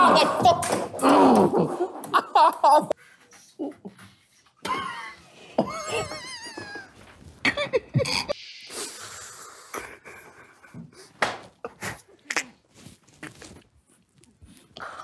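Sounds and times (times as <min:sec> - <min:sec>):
stifled giggling: 0:04.6 - 0:08.4
breathy hiss: 0:08.2 - 0:10.2.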